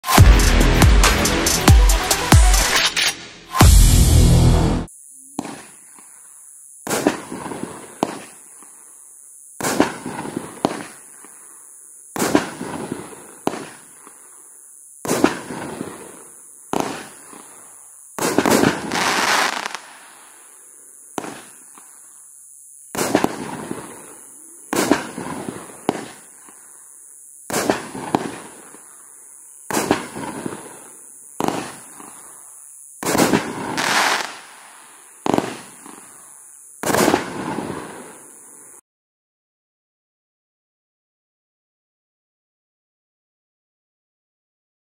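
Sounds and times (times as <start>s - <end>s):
firework crackle: 4.8s - 38.8s
firework bangs: 5.4s - 6.0s, 6.8s - 8.4s, 9.6s - 11.3s, 12.1s - 14.0s, 15.0s - 17.6s, 18.2s - 20.3s, 21.1s - 21.9s, 22.9s - 26.6s, 27.5s - 28.8s, 29.7s - 32.2s, 33.0s - 36.2s, 36.8s - 38.3s.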